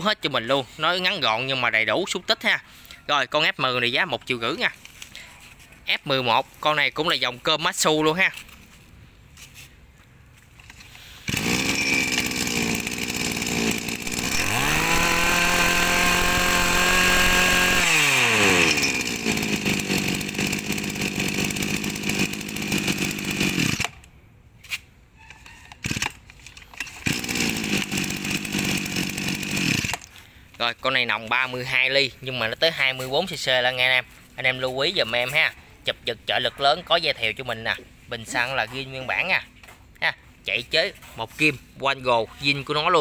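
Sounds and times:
brush cutter engine revving: 0:10.9 - 0:24.0, 0:25.8 - 0:26.1, 0:26.8 - 0:30.2.

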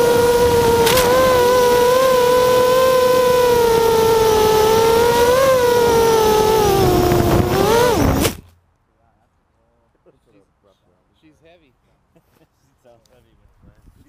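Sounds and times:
quadcopter motors whining: 0:00.0 - 0:08.4
quadcopter crashing into grass: 0:00.6 - 0:02.5, 0:07.4 - 0:08.5.

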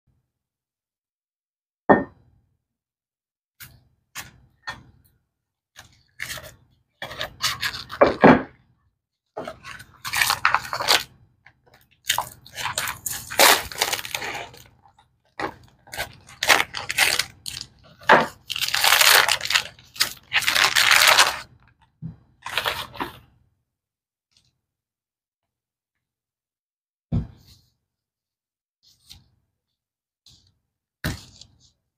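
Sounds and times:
plastic wrap crinkling and tearing: 0:06.0 - 0:08.1, 0:09.4 - 0:11.1, 0:11.7 - 0:21.6, 0:22.4 - 0:23.2.

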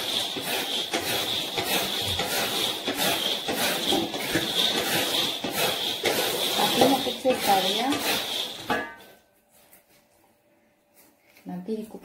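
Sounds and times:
peanuts frying hiss: 0:00.0 - 0:08.7
stirring scrapes and rattles: 0:00.0 - 0:10.0.

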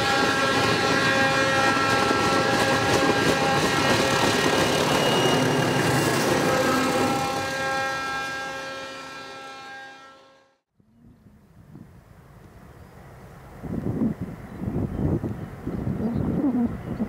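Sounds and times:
locomotive whine: 0:00.0 - 0:11.6
diesel locomotive engine: 0:00.0 - 0:17.0.

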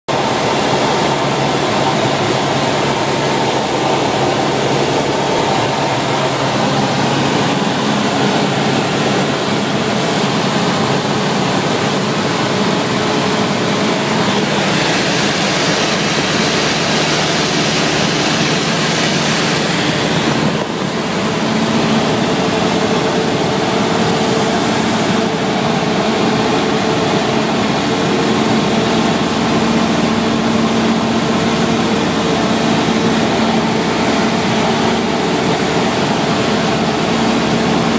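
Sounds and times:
light aircraft engine droning: 0:00.1 - 0:37.9
hiss: 0:14.4 - 0:20.4.

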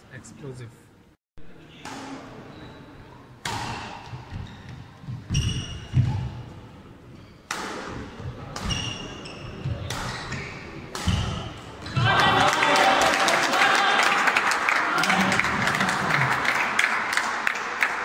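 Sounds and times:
rackets hitting shuttlecock: 0:01.8 - 0:02.3, 0:03.4 - 0:04.5, 0:07.5 - 0:12.1
shoe squeaks: 0:04.4 - 0:06.4, 0:08.6 - 0:10.8.

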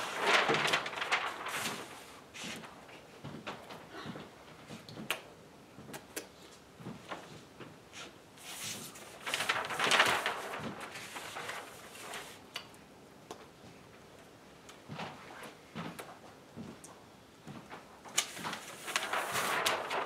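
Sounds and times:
paper sheets rustling and sliding: 0:00.0 - 0:03.9, 0:08.4 - 0:12.5, 0:17.7 - 0:20.0.

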